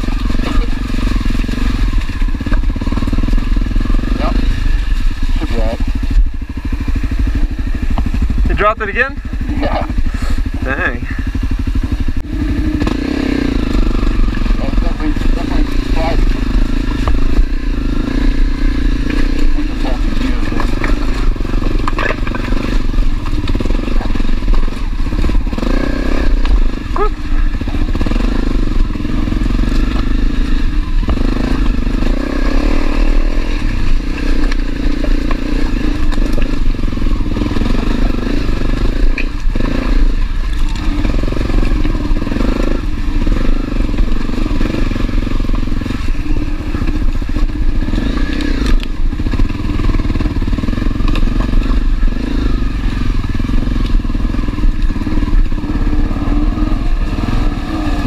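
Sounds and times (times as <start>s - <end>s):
motorcycle engine running: 0.0s - 58.0s
knocks and clatter on loose rocks: 19.1s - 26.7s.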